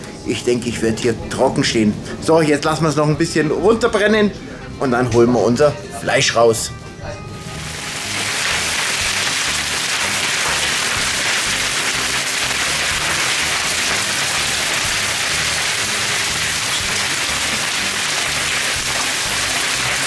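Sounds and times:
hail and heavy rain pelting: 0:07.6 - 0:20.0.

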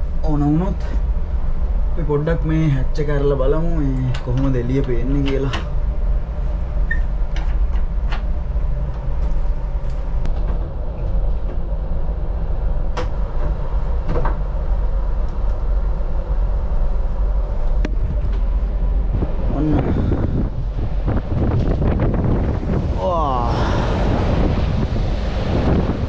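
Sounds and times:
steady low rumble: 0:00.0 - 0:26.0.

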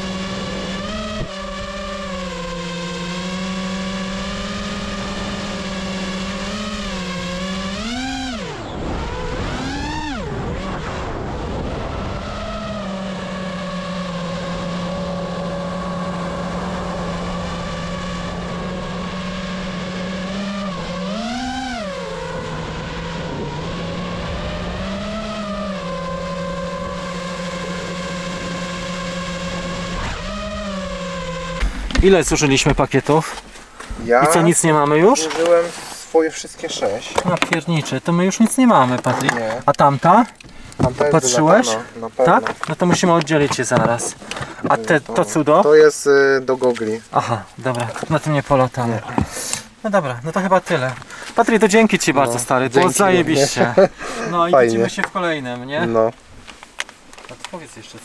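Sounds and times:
quadcopter motors buzzing whine: 0:00.0 - 0:32.9.

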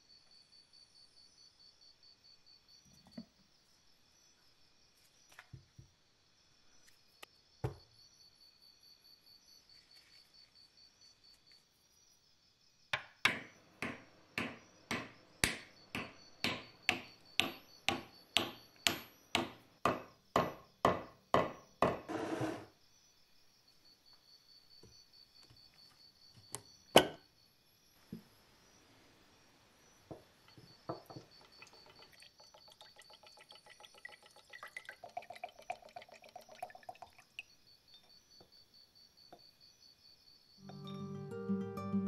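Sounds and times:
hammer striking wooden wedge: 0:13.0 - 0:22.5.

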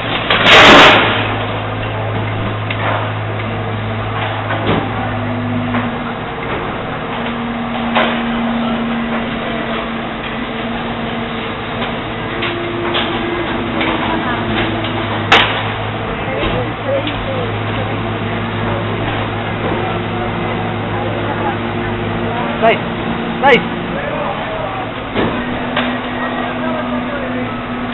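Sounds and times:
high steady whine: 0:00.0 - 0:27.9
low motor hum: 0:00.0 - 0:27.9
metal clanks and knocks: 0:11.7 - 0:17.8.

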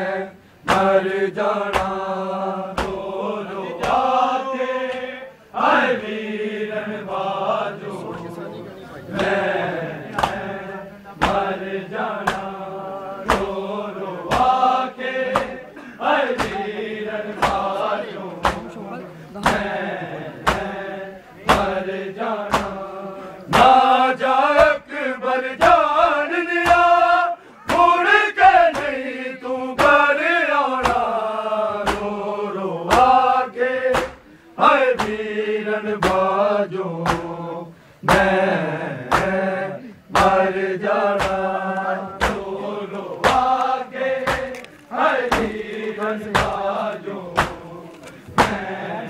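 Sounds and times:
men chanting: 0:00.0 - 0:49.0
hands slapping chests: 0:00.6 - 0:01.0, 0:01.7 - 0:02.0, 0:02.7 - 0:03.0, 0:03.8 - 0:04.0, 0:10.1 - 0:10.5, 0:11.2 - 0:11.6, 0:12.2 - 0:12.6, 0:13.3 - 0:13.6, 0:14.3 - 0:14.6, 0:15.3 - 0:15.6, 0:16.3 - 0:16.6, 0:17.4 - 0:17.7, 0:18.4 - 0:18.7, 0:19.4 - 0:19.8, 0:20.4 - 0:20.8, 0:21.5 - 0:21.8, 0:22.5 - 0:22.8, 0:23.5 - 0:23.8, 0:28.7 - 0:29.0, 0:30.8 - 0:31.1, 0:31.8 - 0:32.2, 0:33.9 - 0:34.2, 0:35.0 - 0:35.2, 0:36.0 - 0:36.3, 0:37.0 - 0:37.3, 0:38.0 - 0:38.4, 0:39.1 - 0:39.4, 0:40.1 - 0:40.5, 0:41.1 - 0:48.9.

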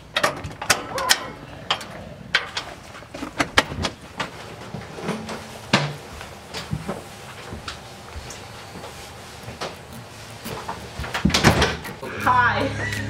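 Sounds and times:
footsteps: 0:02.5 - 0:12.8.

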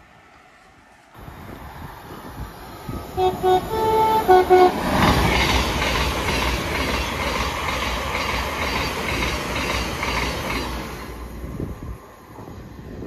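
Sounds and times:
train passing at speed: 0:00.0 - 0:13.0
train horn: 0:03.2 - 0:04.9
wheel clatter over rail joints: 0:04.8 - 0:11.3.

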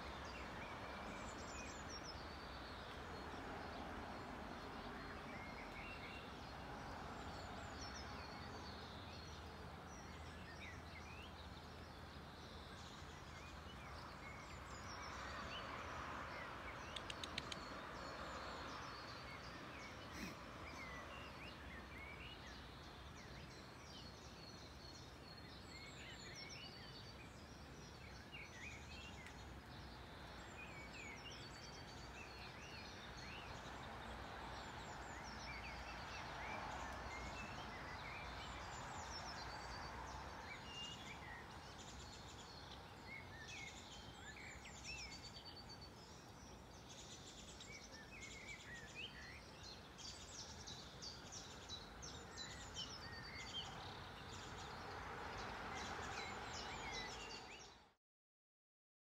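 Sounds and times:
songbirds chirping: 0:00.0 - 0:58.0
quick ticks: 0:16.9 - 0:17.7.

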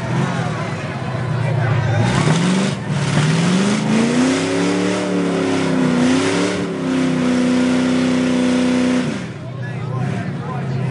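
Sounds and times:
pickup engine revving hard: 0:01.8 - 0:10.4.

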